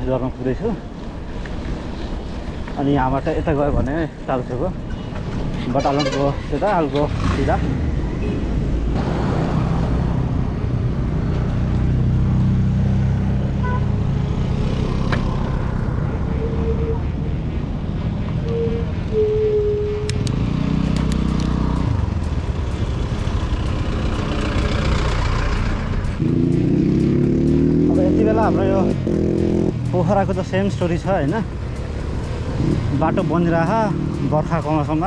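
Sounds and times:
vehicle engines passing: 0.0s - 35.0s
engine accelerating: 20.1s - 35.0s.

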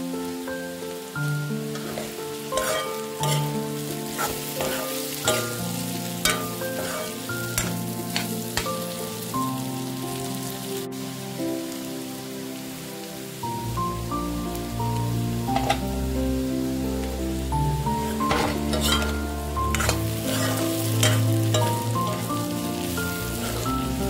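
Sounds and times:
vegetables sizzling in wok: 0.0s - 24.0s
metal spatula scraping wok: 1.7s - 8.8s, 15.6s - 15.8s, 17.9s - 24.0s.

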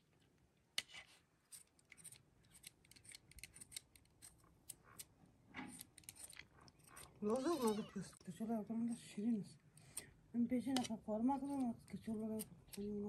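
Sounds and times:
knife scraping potato peel: 0.8s - 5.1s.

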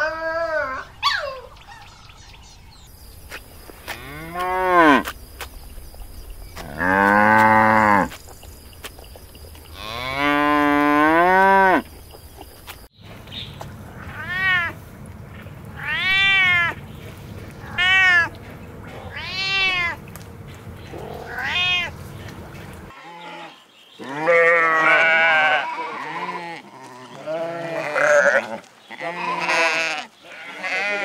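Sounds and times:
sheep bleating: 22.9s - 31.0s.

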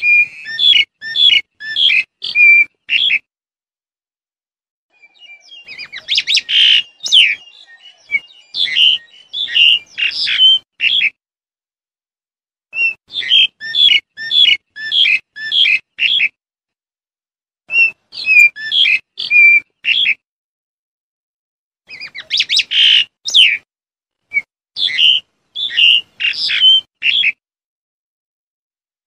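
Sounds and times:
starling calling: 0.0s - 3.3s, 4.9s - 11.2s, 12.8s - 16.4s, 17.7s - 20.2s, 21.9s - 23.6s, 24.3s - 27.4s.

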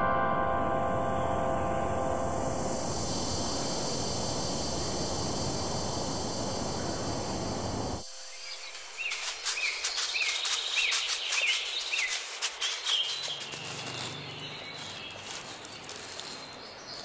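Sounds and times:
steady hiss: 0.0s - 16.4s
bird chirping: 2.6s - 17.0s
plastic bag rustling: 8.0s - 17.0s.

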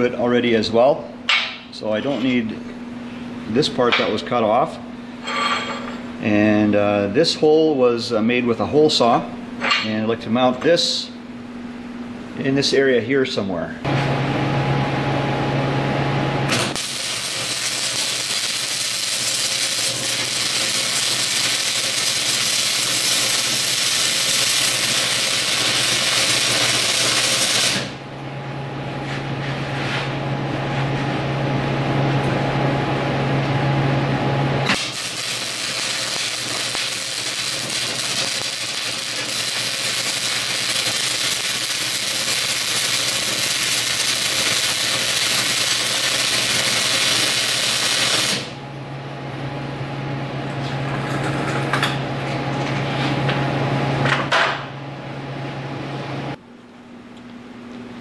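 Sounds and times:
steady low hum: 0.0s - 58.0s
arc welding crackling hiss: 16.5s - 28.0s, 34.7s - 48.6s.

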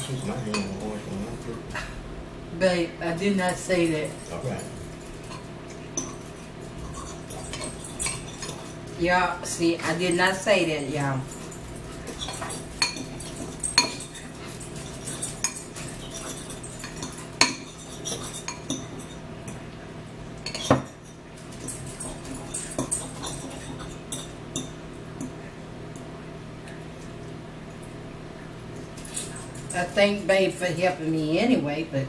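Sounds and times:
forks clinking against bowls: 0.0s - 1.5s, 3.4s - 19.7s, 20.4s - 26.1s, 28.8s - 30.3s.

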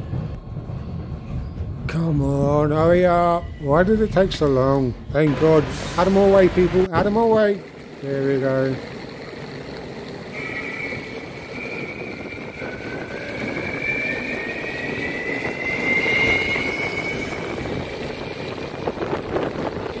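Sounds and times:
skateboard wheels rumbling on tarmac: 5.9s - 13.5s.

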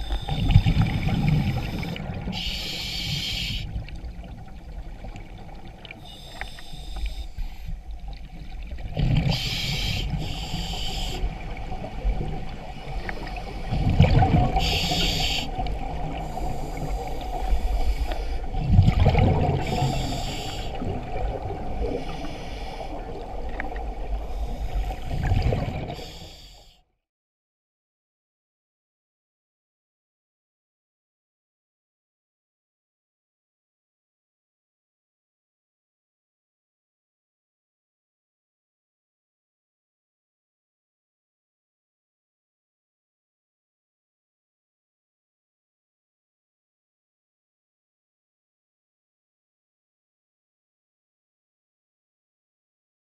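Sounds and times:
diver breathing through regulator: 0.0s - 3.9s, 6.0s - 7.9s, 9.2s - 11.4s, 13.0s - 18.6s, 19.4s - 23.2s, 24.2s - 26.8s
underwater hum: 0.0s - 26.8s.

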